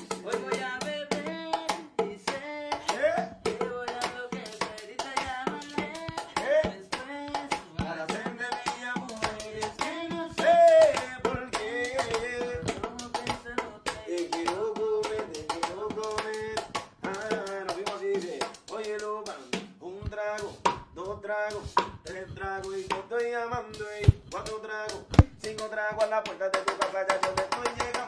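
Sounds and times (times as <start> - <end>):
sharp percussive clicks: 0.0 - 28.0.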